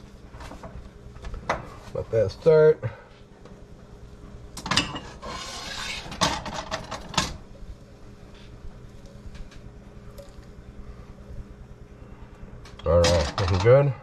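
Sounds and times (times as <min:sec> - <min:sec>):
pan scraping on burner: 0:04.7 - 0:07.3.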